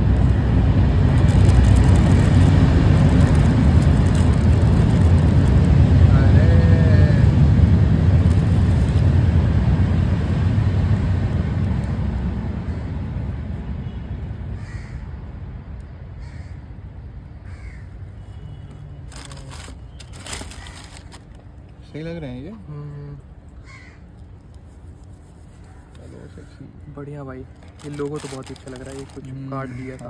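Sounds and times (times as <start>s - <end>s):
passing vehicle rumble: 0.0s - 15.8s
handling rustle: 19.0s - 21.6s, 27.5s - 30.0s.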